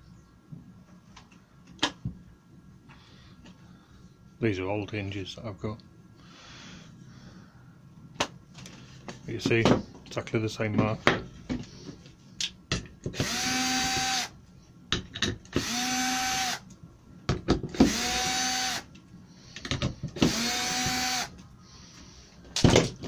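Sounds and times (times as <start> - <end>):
drill motor whine: 13.2 - 14.3, 15.6 - 16.6, 17.8 - 18.9, 20.2 - 21.4.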